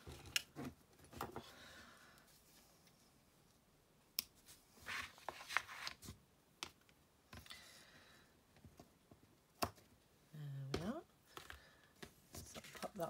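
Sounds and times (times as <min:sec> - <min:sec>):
twine and paper rustling: 0:11.3 - 0:13.0.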